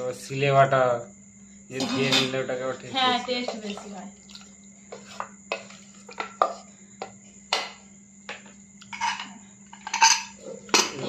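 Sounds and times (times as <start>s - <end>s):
clattering scrapes: 8.9s - 10.9s.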